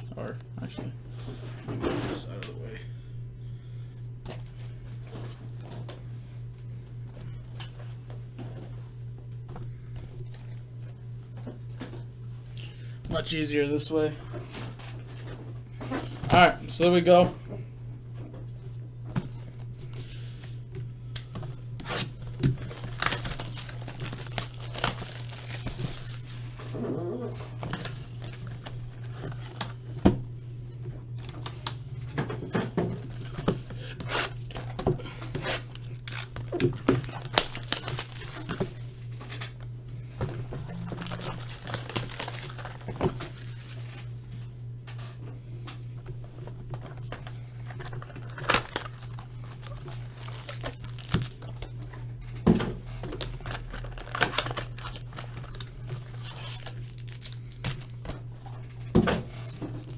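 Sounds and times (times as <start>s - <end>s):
steady low hum: 0.0s - 59.9s
foil card packs rustling: 19.1s - 30.0s, 32.6s - 45.2s, 46.1s - 59.9s
cellophane wrap crinkling: 19.9s - 29.8s, 35.3s - 39.2s, 40.3s - 44.1s, 46.7s - 52.0s, 52.8s - 58.8s.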